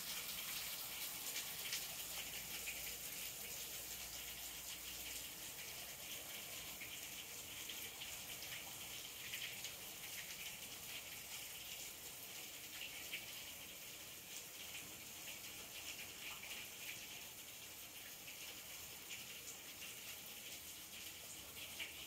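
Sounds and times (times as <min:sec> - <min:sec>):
hard rain pouring: 0:00.0 - 0:22.0.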